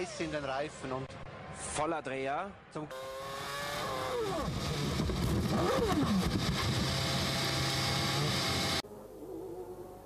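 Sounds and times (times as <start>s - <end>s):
racing car engine: 2.9s - 8.8s.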